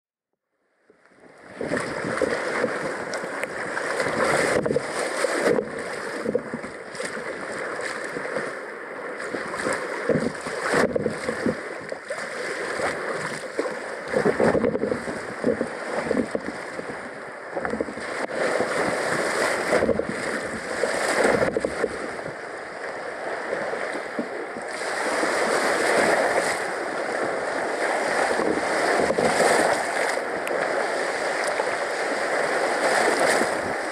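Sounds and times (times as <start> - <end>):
water splashing around a kayak: 0.8 - 33.9
wind buffeting the microphone: 1.5 - 8.5, 9.2 - 22.4, 24.2 - 31.7, 32.3 - 33.9.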